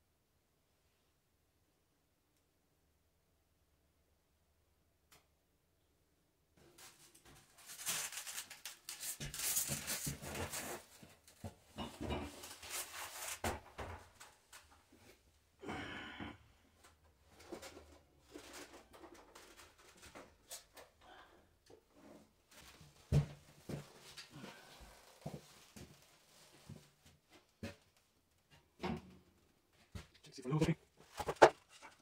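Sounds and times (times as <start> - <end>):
scraping rustling and knocking: 31.0 - 32.0.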